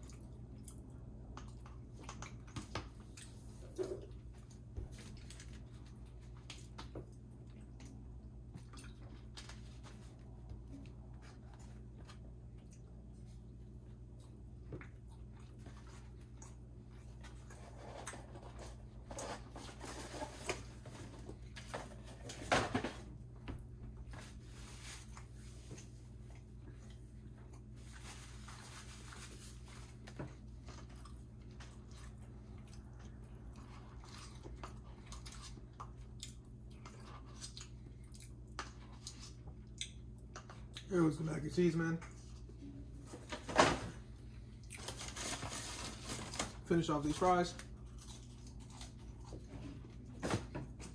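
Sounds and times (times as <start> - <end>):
person chewing food: 0.0 - 19.3, 24.7 - 28.4, 30.0 - 40.9, 44.2 - 45.0.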